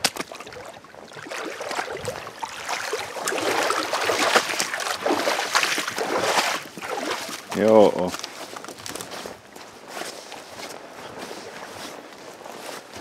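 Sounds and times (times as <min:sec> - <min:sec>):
boat gear rustling and clicking: 0:07.3 - 0:09.6.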